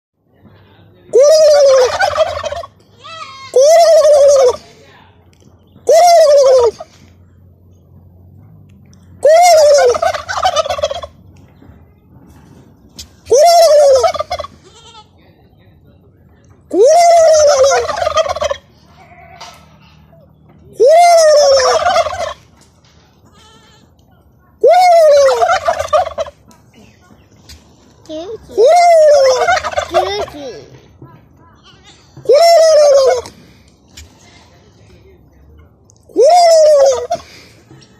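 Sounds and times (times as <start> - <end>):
turkeys gobbling: 1.1 - 2.8, 3.4 - 4.8, 5.6 - 7.0, 9.2 - 11.2, 12.8 - 14.6, 16.8 - 20.2, 20.8 - 22.6, 24.6 - 28.0, 28.6 - 30.4, 32.2 - 34.3, 36.1 - 37.4.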